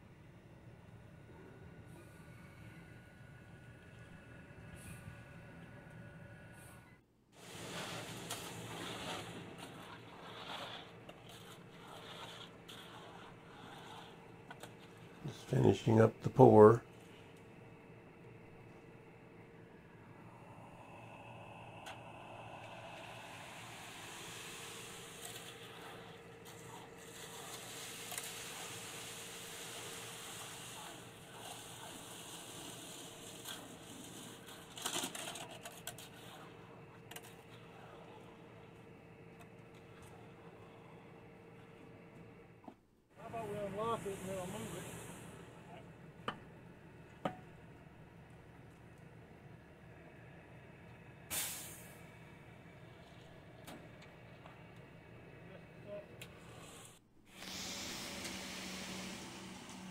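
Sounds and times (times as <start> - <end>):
low steady hum: 0.0 - 59.9
wet concrete scraping and squishing: 7.6 - 15.0
steady hiss: 20.2 - 34.3, 43.2 - 45.8, 56.4 - 59.9.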